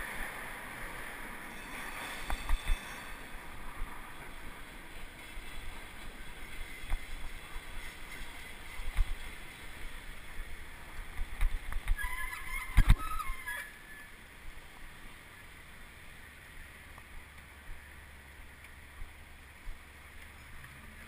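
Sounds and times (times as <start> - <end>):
short high squeal: 1.5 - 3.3
road rumble: 3.2 - 21.0.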